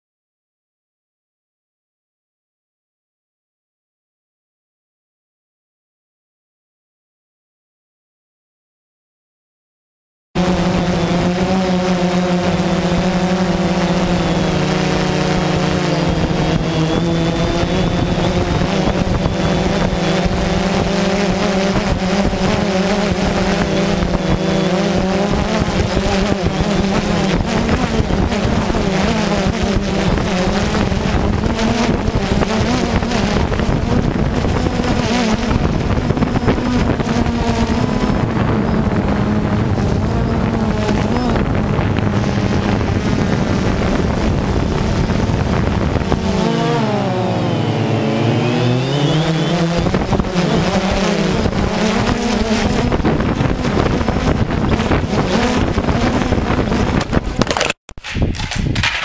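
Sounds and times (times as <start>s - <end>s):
drone propellers buzzing: 10.4s - 59.0s
rushing noise: 41.6s - 50.6s.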